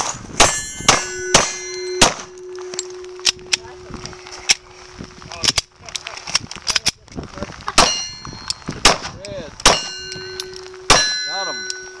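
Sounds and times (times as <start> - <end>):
steel plate target ringing: 0.0 - 3.8, 7.8 - 8.7, 9.6 - 12.0
pistol shots: 0.4 - 2.3, 7.8 - 8.1, 8.8 - 10.0, 10.9 - 11.2.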